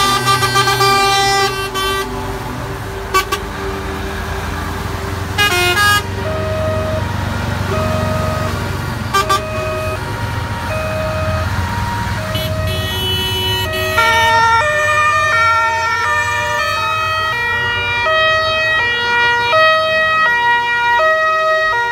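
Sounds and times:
short loud horn blasts: 0:00.0 - 0:02.2, 0:05.4 - 0:06.7, 0:09.1 - 0:10.0, 0:12.3 - 0:14.6
truck engines rumbling: 0:00.0 - 0:21.9
two-tone fire engine sirens: 0:00.0 - 0:21.9.

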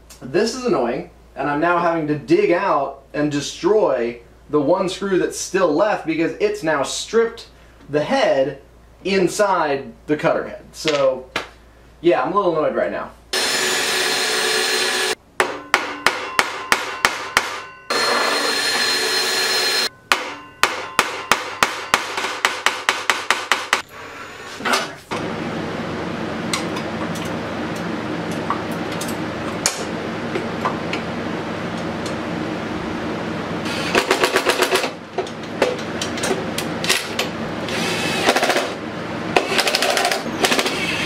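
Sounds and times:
drill motor whirring: 0:13.4 - 0:15.2, 0:17.9 - 0:19.9, 0:33.7 - 0:34.3, 0:37.6 - 0:38.8, 0:39.4 - 0:41.0
sharp rapid knocking: 0:20.1 - 0:23.8.

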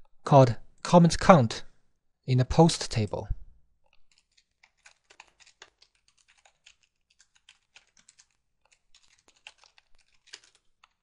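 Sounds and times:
typing on a computer keyboard: 0:03.9 - 0:11.0.

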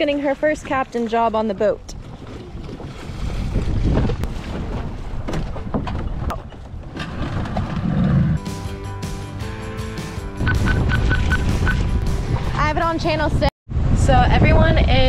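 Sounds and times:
boat noise: 0:00.0 - 0:08.4, 0:10.0 - 0:13.5
wind buffeting microphone: 0:00.0 - 0:08.4, 0:10.5 - 0:15.0
rushing water: 0:10.5 - 0:12.5.

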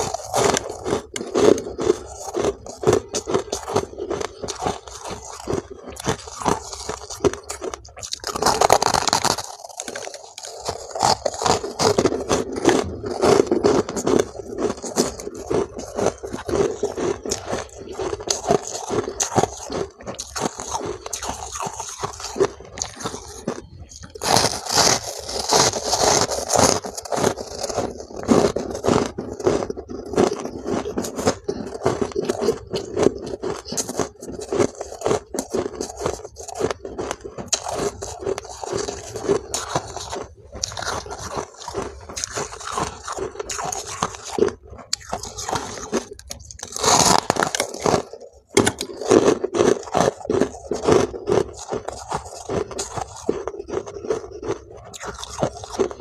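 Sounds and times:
chewing crunchy ice: 0:00.0 - 0:56.0.

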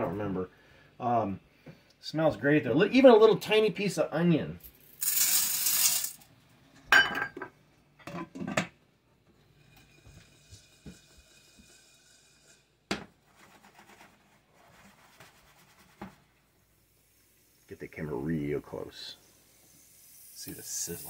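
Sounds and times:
popcorn kernels rattling in pot: 0:04.8 - 0:06.2
grease sizzling: 0:04.9 - 0:06.2, 0:09.5 - 0:12.8, 0:16.6 - 0:21.0
glass lid clink: 0:06.9 - 0:07.4.

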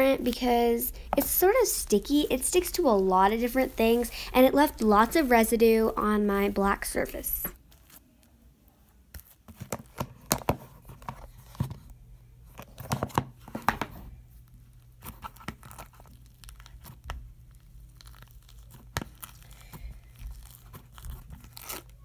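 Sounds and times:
slime crackling and tearing: 0:15.0 - 0:22.0.

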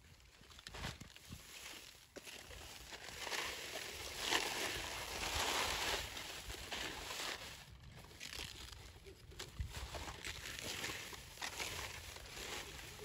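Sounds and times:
wheat stalks rustling and crunching: 0:00.1 - 0:13.0.

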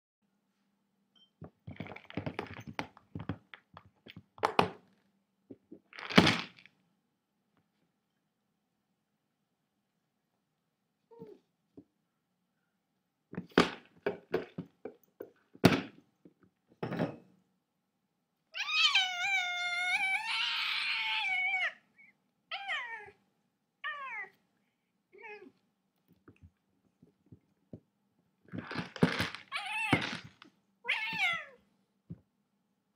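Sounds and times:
cat meowing: 0:18.6 - 0:21.8, 0:30.8 - 0:31.6.

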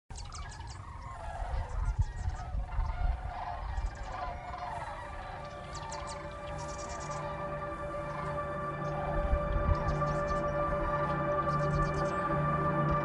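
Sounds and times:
cranes calling: 0:00.1 - 0:13.0
low rumble: 0:04.6 - 0:13.0.

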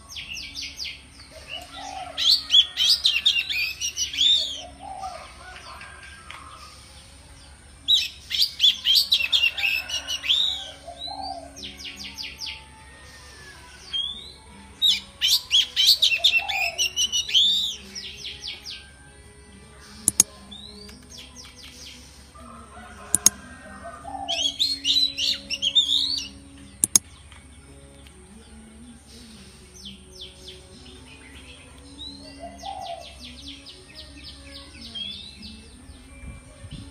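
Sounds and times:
sharp clicks: 0:20.0 - 0:21.2, 0:23.1 - 0:23.4, 0:26.8 - 0:27.4
bird singing whistles: 0:24.3 - 0:26.4.

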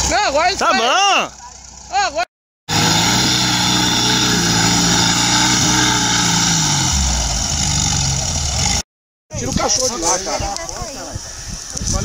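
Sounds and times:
buggy engine revving hard: 0:02.7 - 0:08.8.

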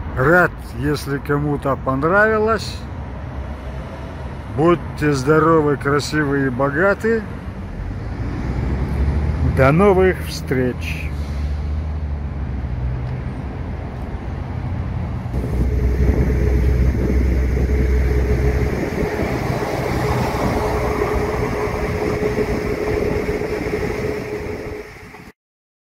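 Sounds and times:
city bus running: 0:00.0 - 0:25.3
street traffic: 0:00.0 - 0:25.3
steady hum: 0:15.3 - 0:25.4.

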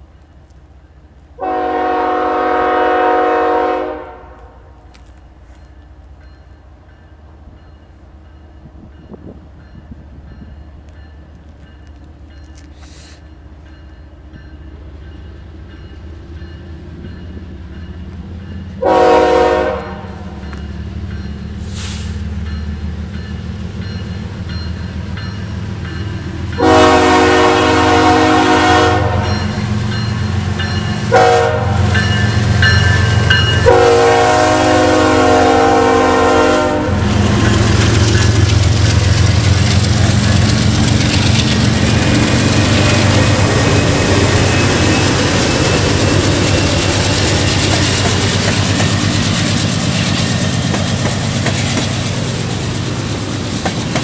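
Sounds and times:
locomotive air horn blasts: 0:01.4 - 0:04.8, 0:18.8 - 0:20.3, 0:26.6 - 0:29.5, 0:31.1 - 0:32.1, 0:33.6 - 0:37.2
locomotive engine rumble: 0:04.3 - 0:54.0.

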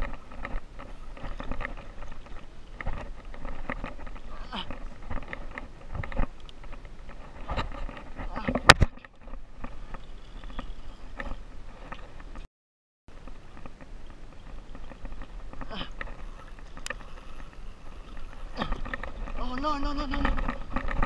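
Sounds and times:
water lapping against kayak hull: 0:00.0 - 0:12.4, 0:13.1 - 0:21.0.

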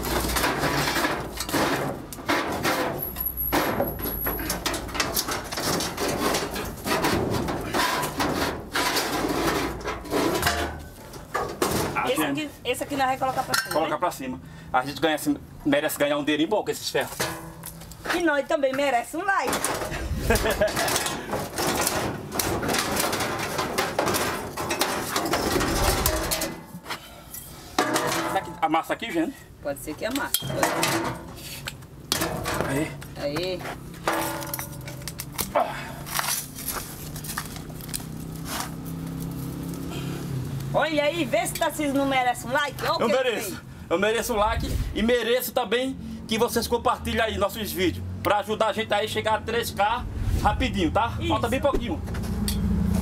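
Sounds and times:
scrap metal clanking and scraping: 0:00.0 - 0:12.4, 0:17.0 - 0:18.3, 0:18.9 - 0:28.9, 0:30.1 - 0:40.2.

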